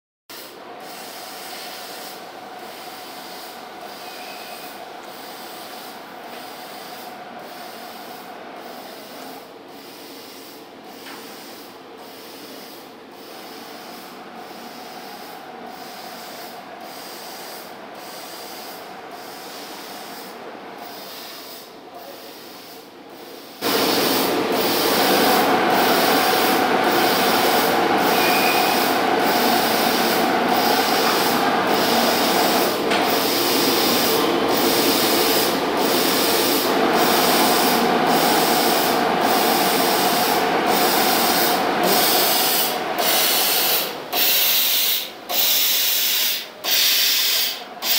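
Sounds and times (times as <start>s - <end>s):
laser cutting machine hiss: 0.3s - 47.9s.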